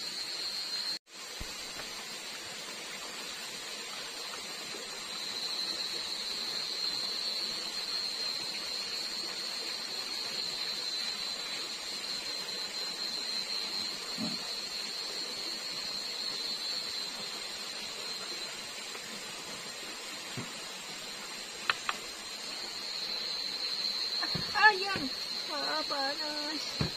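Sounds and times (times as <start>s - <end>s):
crickets chirring: 0.0s - 26.9s
flowing stream water: 0.0s - 26.9s.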